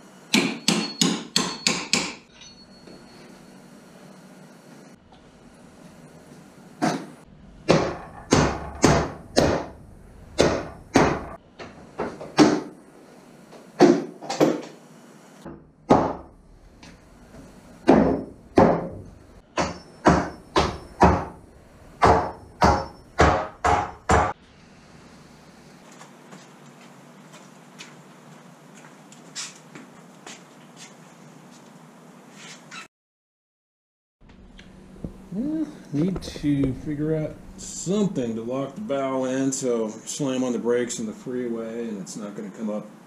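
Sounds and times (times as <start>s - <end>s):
hammer striking wood: 0.3s - 2.2s, 7.7s - 9.8s, 10.4s - 11.4s, 12.1s - 12.7s, 15.5s - 16.3s, 17.8s - 19.0s, 19.6s - 21.4s, 22.0s - 24.4s.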